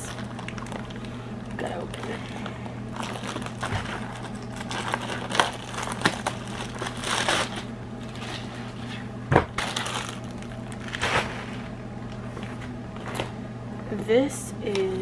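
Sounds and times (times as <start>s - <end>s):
plastic bag crinkling: 0.0s - 11.7s
low electrical hum: 0.0s - 15.0s.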